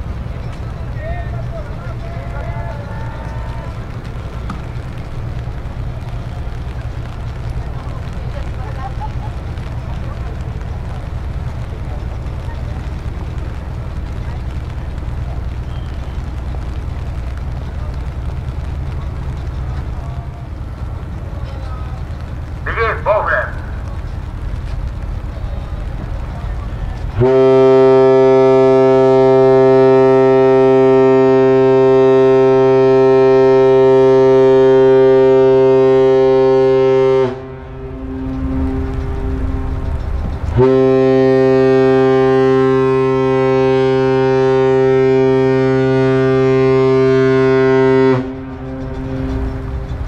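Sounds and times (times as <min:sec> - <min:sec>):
ship's whistle blast: 0:27.2 - 0:39.0, 0:40.6 - 0:49.5.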